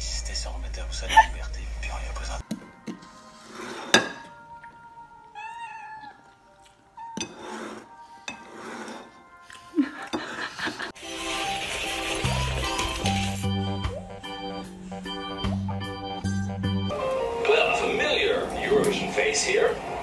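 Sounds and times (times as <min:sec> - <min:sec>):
cat meowing: 0:05.2 - 0:06.4.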